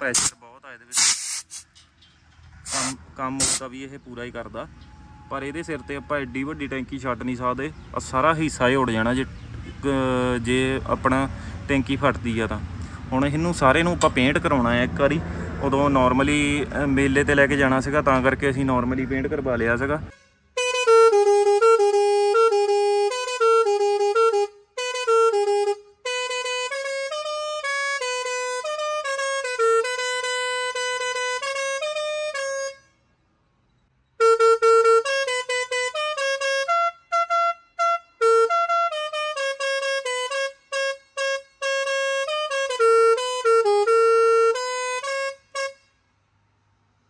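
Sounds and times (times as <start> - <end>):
musical air horn playing a tune: 0.0 - 0.3, 0.9 - 1.7, 2.7 - 3.6, 20.1 - 33.0, 34.2 - 45.9.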